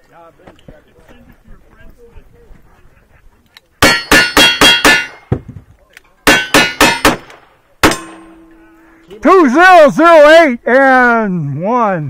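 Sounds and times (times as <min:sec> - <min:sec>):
steel targets ringing: 0:03.8 - 0:05.3, 0:06.3 - 0:07.2, 0:07.8 - 0:09.3.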